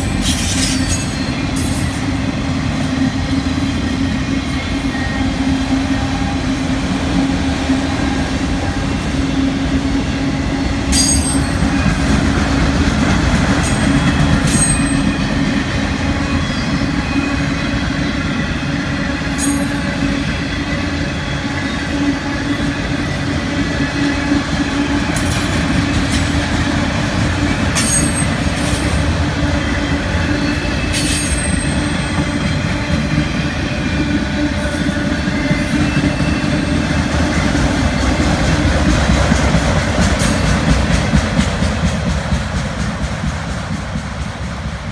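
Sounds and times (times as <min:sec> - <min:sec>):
freight train rumbling past: 0:00.0 - 0:44.9.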